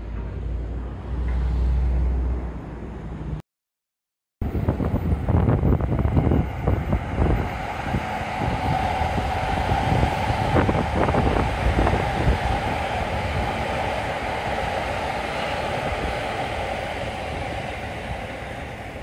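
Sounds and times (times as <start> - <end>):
train whine: 4.4 - 19.0
wind on microphone: 4.4 - 19.0
train wheels clacking on rails: 6.0 - 19.0.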